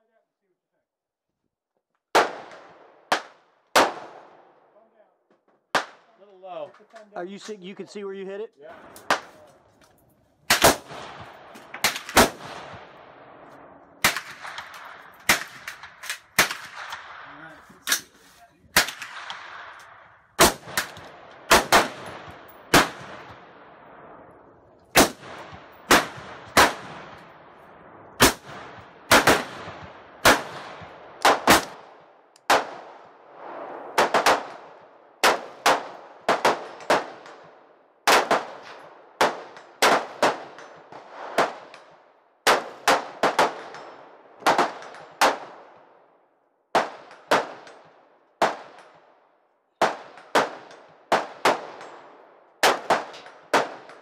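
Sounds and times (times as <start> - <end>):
rifle shots: 2.1 - 4.6, 5.7 - 6.1, 8.8 - 9.4, 10.4 - 24.2, 24.9 - 33.2, 33.9 - 45.9, 46.7 - 49.1, 49.8 - 54.0
ringing echo of shots: 10.5 - 17.6.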